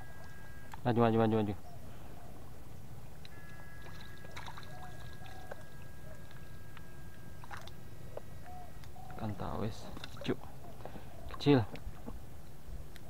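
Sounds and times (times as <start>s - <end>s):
faint high whine: 0.0s - 11.3s
water splashing and trickling: 3.2s - 8.4s, 9.0s - 12.6s.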